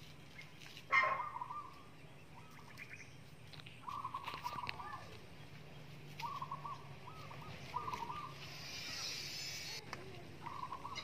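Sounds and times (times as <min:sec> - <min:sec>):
fowl calling: 0:06.2 - 0:09.1
hiss: 0:08.4 - 0:09.8.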